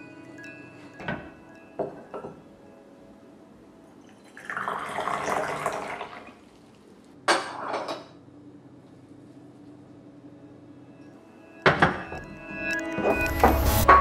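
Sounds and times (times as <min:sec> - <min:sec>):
water pouring into teapot: 0:04.1 - 0:06.6.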